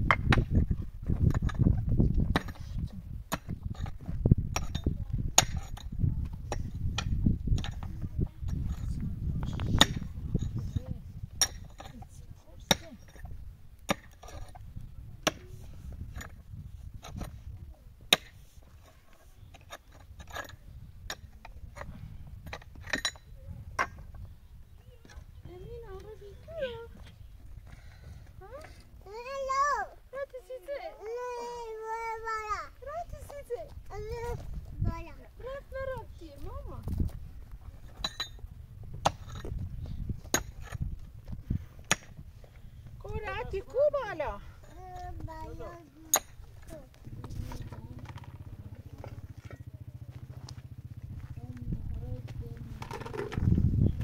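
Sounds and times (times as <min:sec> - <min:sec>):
hand tools striking stone: 0:02.3 - 0:02.6, 0:03.3 - 0:05.9, 0:11.4 - 0:14.6, 0:18.1 - 0:18.4, 0:19.6 - 0:24.1, 0:38.0 - 0:38.4, 0:39.0 - 0:39.5, 0:40.2 - 0:40.9, 0:41.8 - 0:42.2, 0:46.1 - 0:46.7
low steady rumble: 0:33.5 - 0:54.0
steady low rumble: 0:45.8 - 0:54.0.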